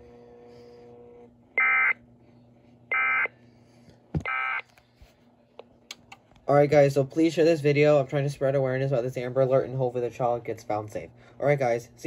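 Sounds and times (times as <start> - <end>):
low steady hum: 0.0 - 12.0.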